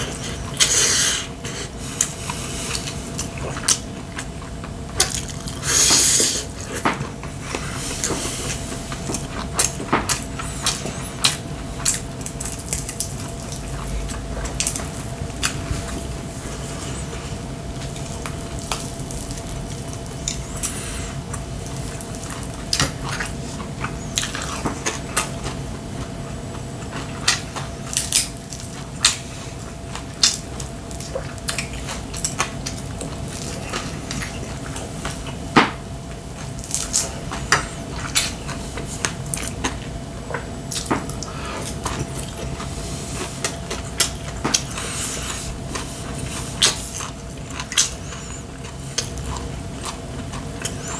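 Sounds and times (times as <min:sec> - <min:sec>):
faint steady hum: 0:00.0 - 0:50.9
wet chewing: 0:00.0 - 0:50.9.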